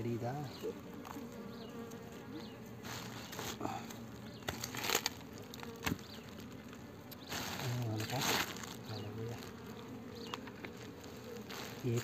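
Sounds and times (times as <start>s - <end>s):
bees buzzing: 0.0s - 12.0s
dry debris crackling: 2.8s - 9.8s.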